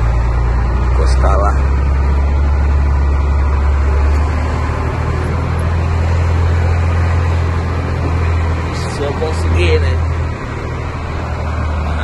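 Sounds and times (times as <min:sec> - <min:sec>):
truck diesel engine running: 0:00.0 - 0:12.0.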